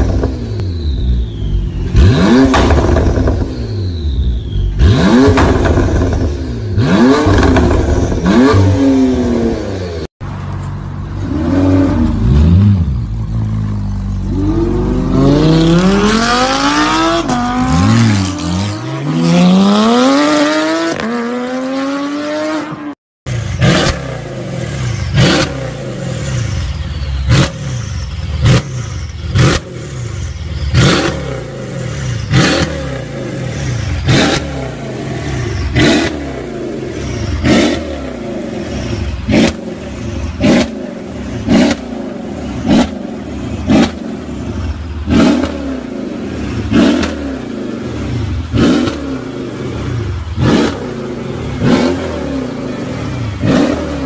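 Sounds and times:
car engine revving: 0:00.0 - 0:10.1, 0:11.2 - 0:54.0
exhaust crack: 0:01.9 - 0:03.6, 0:04.7 - 0:08.5.

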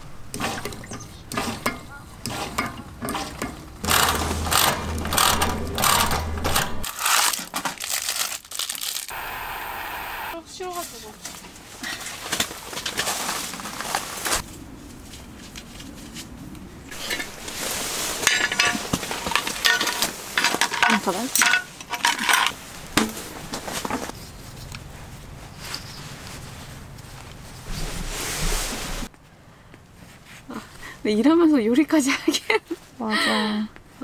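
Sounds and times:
dishes and cutlery clinking: 0:18.2 - 0:22.5.

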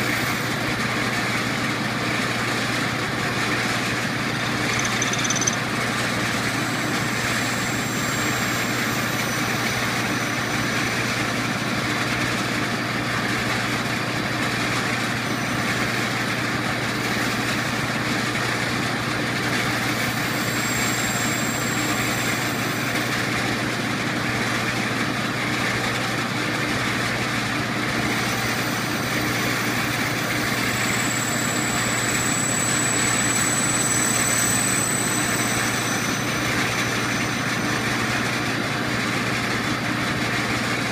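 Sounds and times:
metal lathe cutting brass: 0:04.0 - 0:05.6, 0:06.2 - 0:12.4, 0:15.1 - 0:24.1, 0:26.9 - 0:39.7
faint high whistle: 0:04.6 - 0:05.6, 0:07.0 - 0:11.4, 0:19.7 - 0:23.4, 0:28.1 - 0:38.5.

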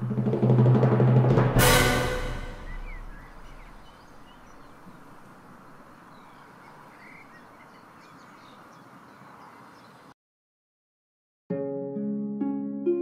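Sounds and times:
steady outdoor hiss: 0:00.0 - 0:10.1
high bird chirps: 0:02.5 - 0:05.2, 0:05.8 - 0:10.0.

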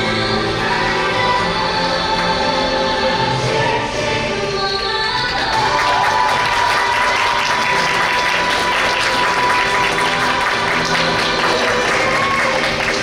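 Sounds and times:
recorded music: 0:00.0 - 0:13.0
audience applauding: 0:05.3 - 0:13.0.

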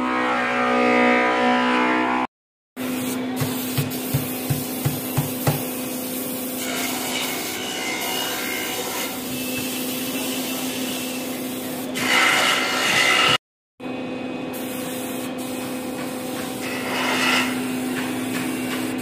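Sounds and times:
spray gun hissing: 0:02.9 - 0:06.6, 0:09.2 - 0:11.9, 0:14.6 - 0:16.6.

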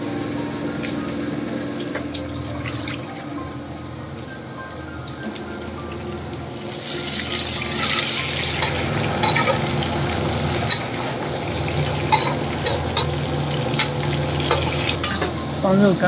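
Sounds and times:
meat sizzling in a wok: 0:06.5 - 0:16.0
spatula clinking against wok: 0:08.6 - 0:09.6, 0:12.1 - 0:13.2.

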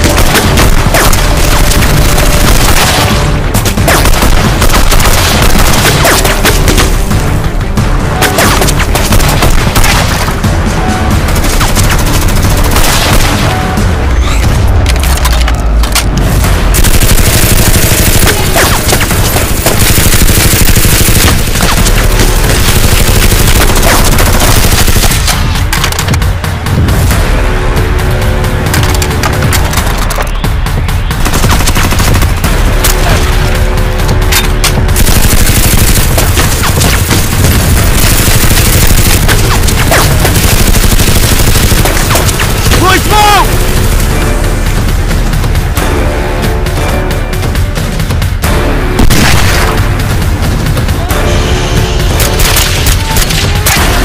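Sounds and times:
rapid automatic gunfire: 0:00.0 - 0:07.2, 0:08.2 - 0:10.4, 0:11.1 - 0:13.6, 0:16.6 - 0:26.4, 0:31.1 - 0:32.8, 0:34.9 - 0:44.2.

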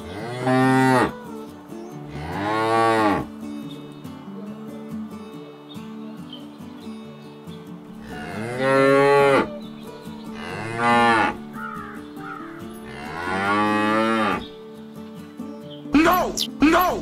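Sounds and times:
cows mooing: 0:00.0 - 0:01.2, 0:02.1 - 0:03.3, 0:08.0 - 0:09.6, 0:10.4 - 0:14.5.

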